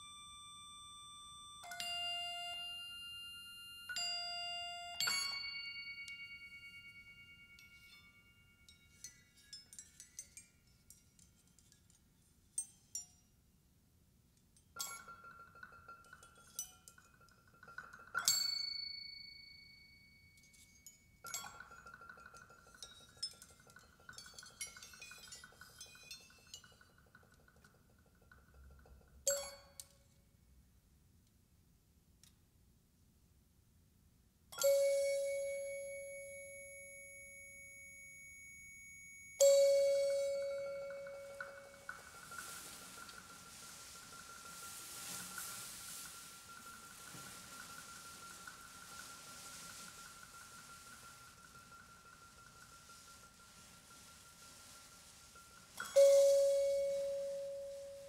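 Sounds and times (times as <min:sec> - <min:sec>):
ringing struck tones: 0:00.0 - 0:11.1, 0:34.6 - 0:58.0.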